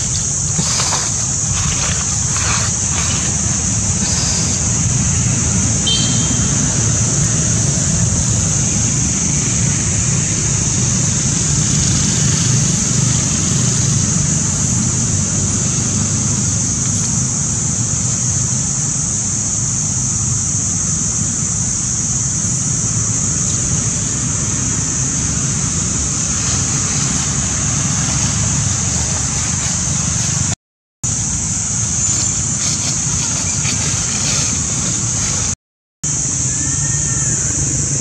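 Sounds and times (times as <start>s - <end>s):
high-pitched insect drone: 0.0s - 38.0s
brief high chirp: 5.8s - 6.6s.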